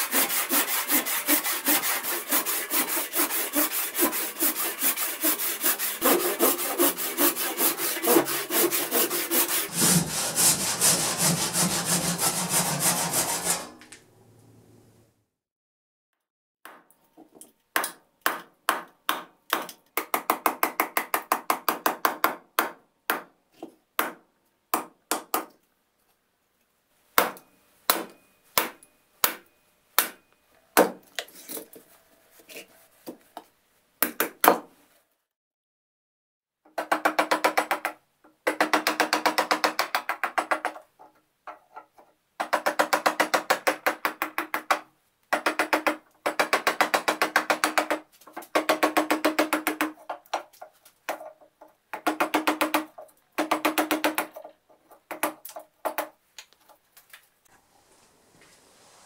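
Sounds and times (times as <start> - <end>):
rapid blows on chisel: 0.0 - 13.8.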